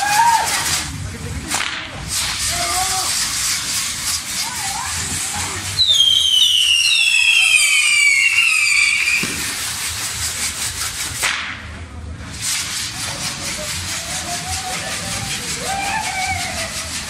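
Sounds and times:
whistling rockets: 0.0 - 10.3
crackle and fizz of sparks: 0.2 - 11.2.

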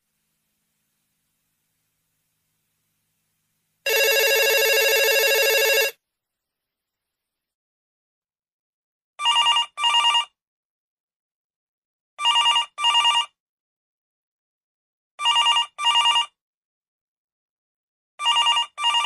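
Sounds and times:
telephone bell ringing: 3.9 - 6.0, 9.2 - 10.4, 12.2 - 13.3, 15.2 - 16.4, 18.2 - 19.0.

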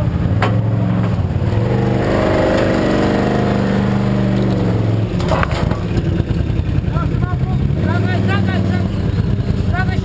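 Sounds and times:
quad bike engine under load: 0.0 - 10.0.

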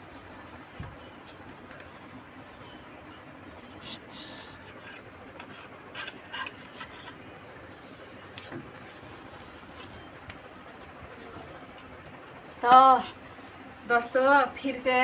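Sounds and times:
faint rustling and rubbing: 6.7 - 11.7.

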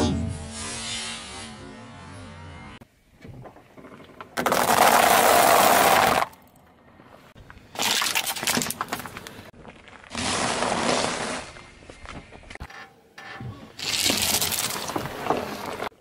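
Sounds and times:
plastic balls cracking: 3.7 - 6.6, 7.7 - 11.2
tyre crunching dry pasta: 4.4 - 6.4, 7.7 - 11.7, 13.8 - 15.9.

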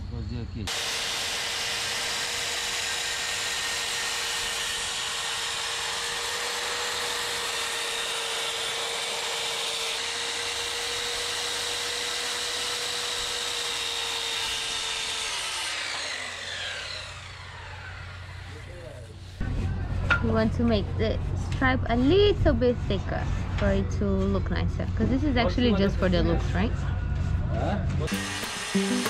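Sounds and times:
saw blade winding down: 0.7 - 19.1, 28.1 - 29.0
circular saw cutting wood: 0.7 - 19.4, 28.1 - 29.0.

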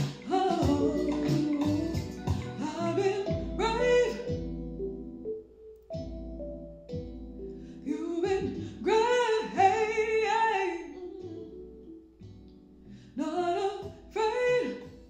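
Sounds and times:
woman singing: 0.0 - 4.4, 7.8 - 12.1, 13.2 - 15.0
soft instrumental backing: 0.0 - 15.0.

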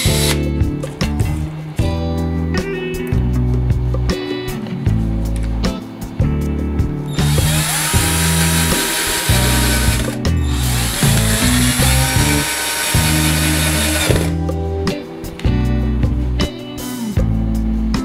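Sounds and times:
cordless drill whining: 0.0 - 0.4, 7.1 - 14.4
background music: 0.0 - 18.0.

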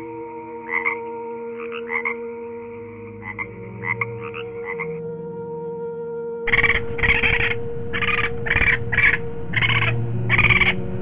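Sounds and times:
humming drone: 0.0 - 11.0
frog croaking: 0.6 - 5.0, 6.5 - 11.0.

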